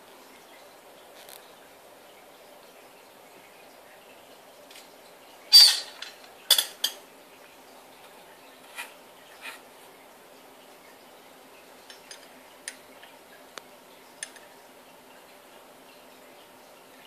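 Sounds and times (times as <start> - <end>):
metal tweezers clattering: 5.5 - 7.0.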